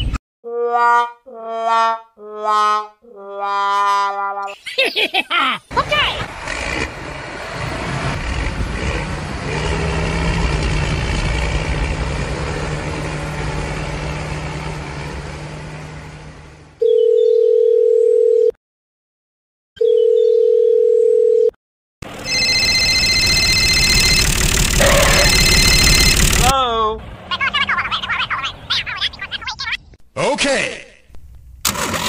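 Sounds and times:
high steady tones: 22.2s - 26.5s
loud electronic beeps: 22.2s - 26.5s
noisy drone with hum: 22.3s - 26.5s.

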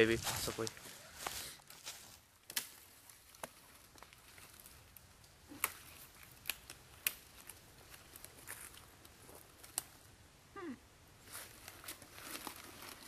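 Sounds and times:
boots cracking dry bark and wood: 0.0s - 10.0s.

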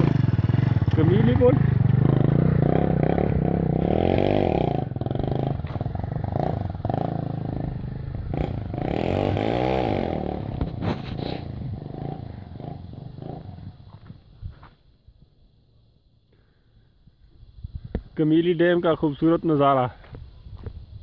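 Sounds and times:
motorcycle engine on dirt track: 0.0s - 15.4s.

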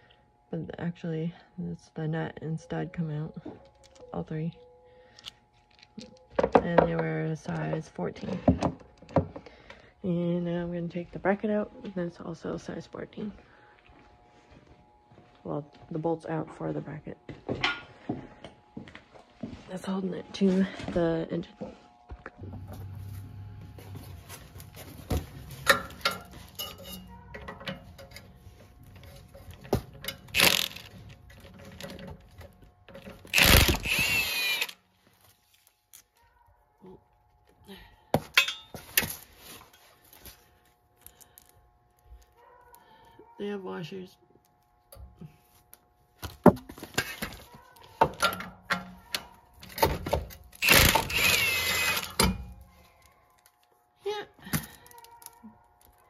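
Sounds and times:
metal tools clinking and knocking: 25.5s - 28.4s, 38.4s - 38.9s
ratchet clicking on metal bolts: 30.0s - 31.0s, 50.6s - 52.4s.

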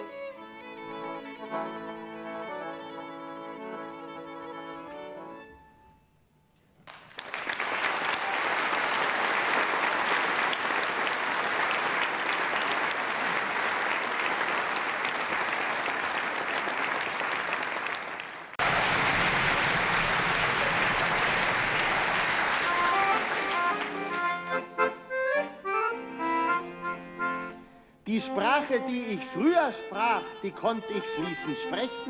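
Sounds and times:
audience applauding: 6.8s - 24.5s.

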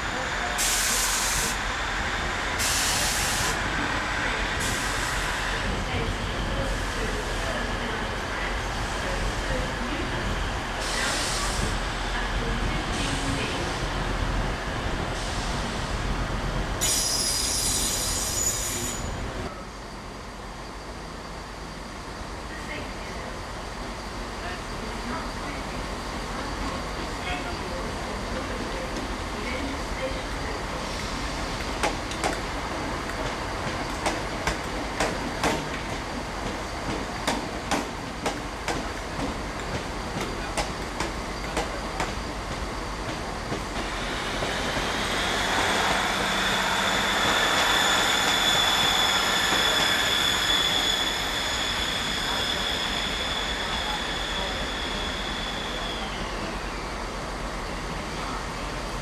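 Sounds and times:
train rumbling past: 0.0s - 59.0s
high wheel squeal: 16.8s - 19.2s, 44.4s - 56.6s.

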